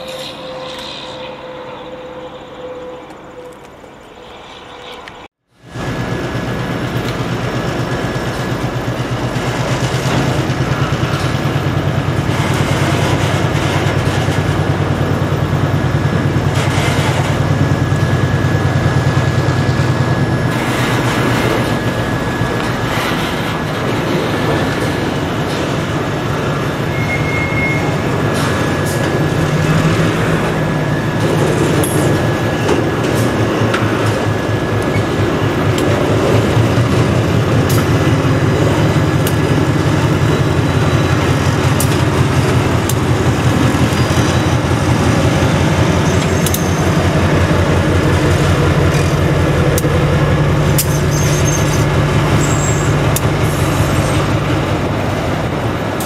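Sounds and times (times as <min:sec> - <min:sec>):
wheel squeal: 0:00.0 - 0:05.3, 0:26.6 - 0:29.9, 0:36.6 - 0:47.2, 0:50.7 - 0:54.4
diesel locomotive engine drone: 0:00.0 - 0:56.0
train wheels clicking over rail joints: 0:06.7 - 0:26.9, 0:27.8 - 0:56.0.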